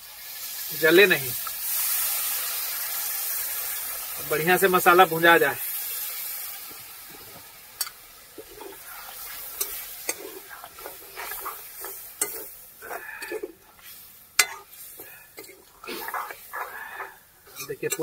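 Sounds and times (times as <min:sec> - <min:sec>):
food sizzling in pan: 0:00.0 - 0:18.0
utensil scraping through paste: 0:15.4 - 0:18.0.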